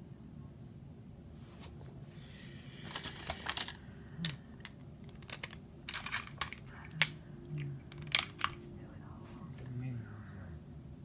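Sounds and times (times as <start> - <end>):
plastic toys clicking and clattering: 2.8 - 7.2, 7.9 - 8.6.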